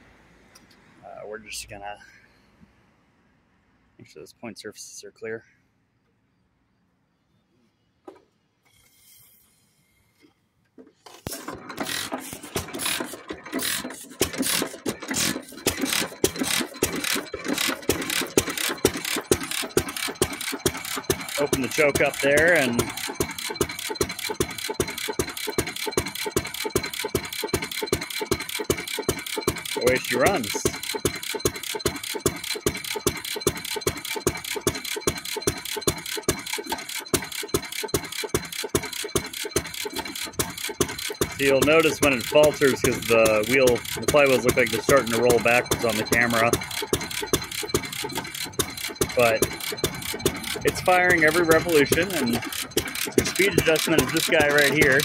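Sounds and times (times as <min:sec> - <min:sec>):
gas engine exhaust bangs: 0:11.5 - 0:55.0.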